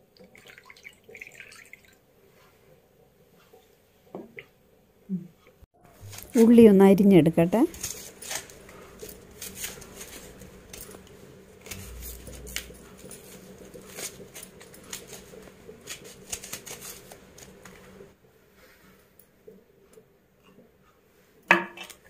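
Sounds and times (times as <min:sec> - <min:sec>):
onion skins crackling and rustling: 0:05.9 - 0:18.2.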